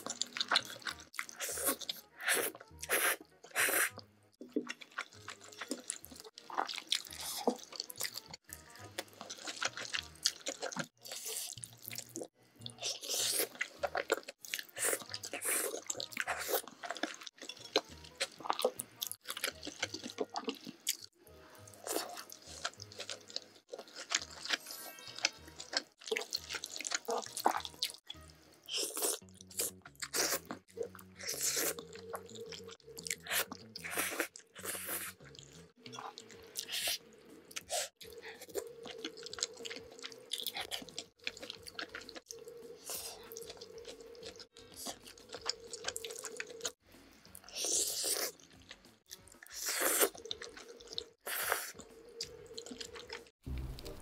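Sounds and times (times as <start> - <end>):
light background music: 0.0 - 54.0
wet chewing: 0.0 - 54.0
noodle slurping: 28.7 - 46.8, 47.4 - 48.8, 49.4 - 53.3.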